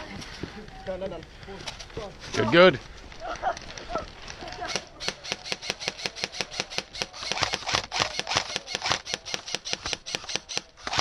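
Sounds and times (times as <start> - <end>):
airsoft rifles firing rapidly: 4.6 - 11.0.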